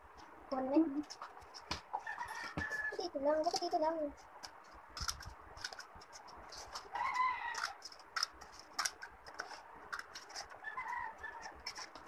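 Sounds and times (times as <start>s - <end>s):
paper rustling: 1.0s - 12.0s
scissors snipping paper: 3.4s - 12.0s.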